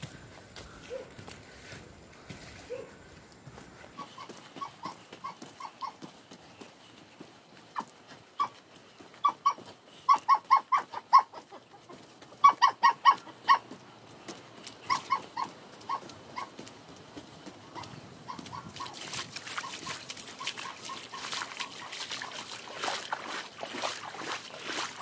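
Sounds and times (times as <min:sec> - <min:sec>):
dog yapping: 0:00.8 - 0:01.1, 0:02.7 - 0:02.9, 0:04.0 - 0:06.0, 0:07.8 - 0:08.6, 0:09.2 - 0:11.5, 0:12.4 - 0:13.7, 0:14.8 - 0:16.6, 0:17.7 - 0:19.0.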